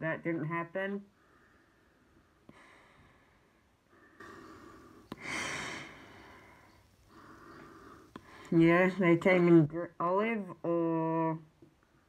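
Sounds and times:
hissing breaths through gas mask: 0:04.0 - 0:08.5.

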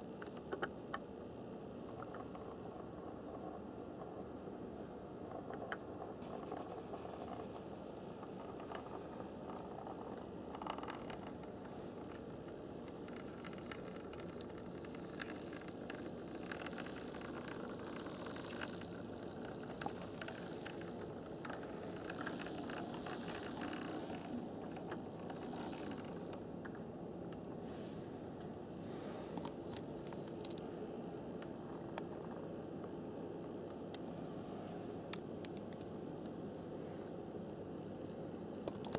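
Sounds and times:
small clicks and rattles: 0:00.1 - 0:01.0, 0:01.8 - 0:04.6, 0:05.2 - 0:27.4, 0:29.3 - 0:30.6, 0:38.6 - 0:38.9.

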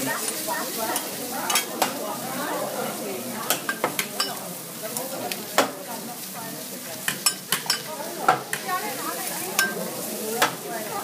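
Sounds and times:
meat sizzling on griddle: 0:00.0 - 0:11.0
spatula clicking on griddle: 0:00.2 - 0:02.0, 0:03.4 - 0:05.8, 0:07.0 - 0:08.7, 0:09.5 - 0:10.6.

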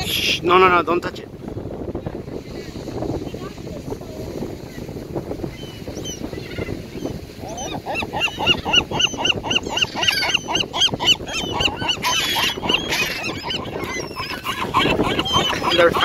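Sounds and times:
gulls yelping: 0:05.5 - 0:16.0
gulls squawking harshly: 0:05.6 - 0:16.0.

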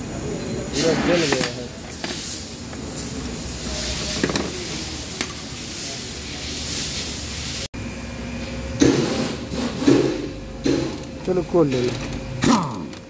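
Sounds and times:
workshop background noise: 0:00.0 - 0:13.0.

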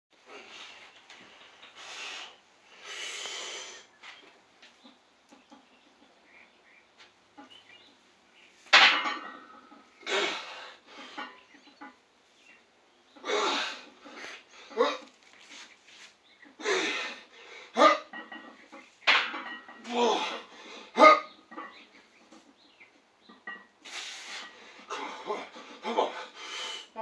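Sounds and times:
person grunting: 0:19.9 - 0:20.4
person breathing hard: 0:23.9 - 0:27.0.

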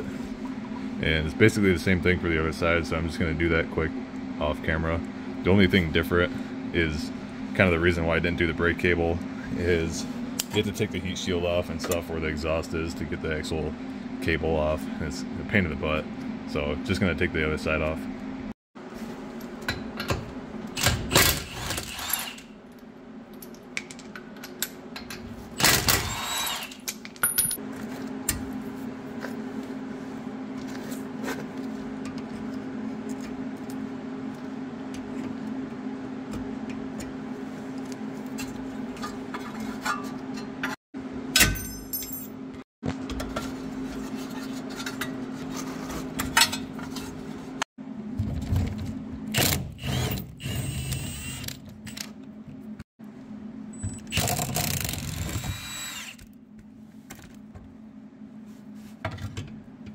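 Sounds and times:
steady low hum: 0:00.0 - 0:26.1, 0:27.2 - 0:59.9
metal tools clinking: 0:27.0 - 0:27.6, 0:41.4 - 0:42.3.

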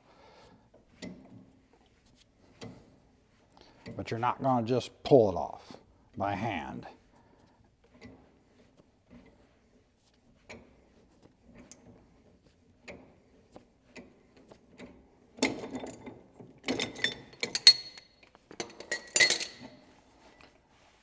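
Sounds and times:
metallic clanks and clinks: 0:15.4 - 0:19.8.

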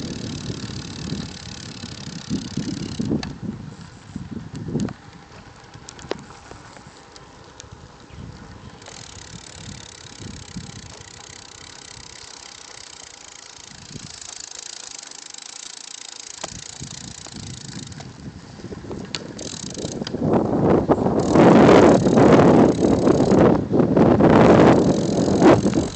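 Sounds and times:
freewheel ratchet ticking: 0:00.0 - 0:03.4, 0:08.8 - 0:18.2, 0:19.1 - 0:20.2, 0:21.1 - 0:23.6, 0:24.3 - 0:25.9
wind buffeting microphone: 0:00.0 - 0:12.6, 0:13.5 - 0:14.4, 0:16.4 - 0:25.9
bicycle tyres hissing: 0:00.0 - 0:25.9.

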